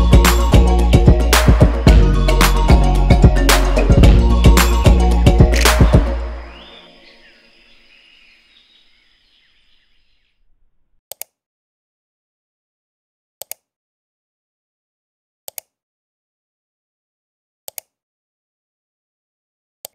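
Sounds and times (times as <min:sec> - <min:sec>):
background music: 0:00.0 - 0:06.9.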